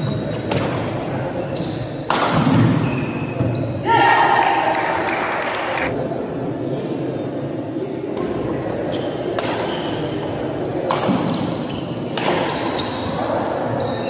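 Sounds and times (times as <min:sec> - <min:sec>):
rackets hitting shuttlecock: 0:00.1 - 0:03.6, 0:08.2 - 0:13.0
crowd murmur: 0:03.8 - 0:10.9.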